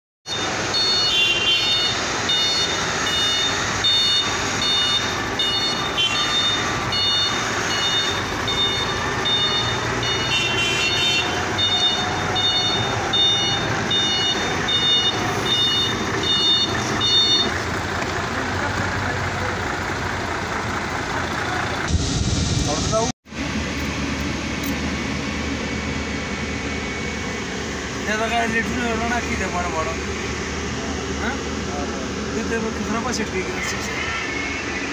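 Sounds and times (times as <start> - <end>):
heavy vehicles running: 0.2 - 34.9
vehicle reversing alarm beeping: 0.3 - 17.7.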